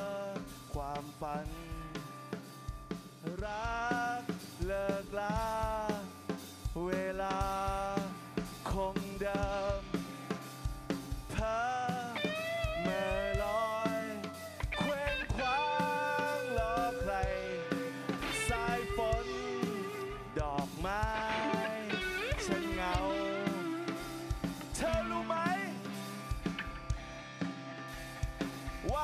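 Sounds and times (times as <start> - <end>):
drum kit beat: 0.0 - 29.0.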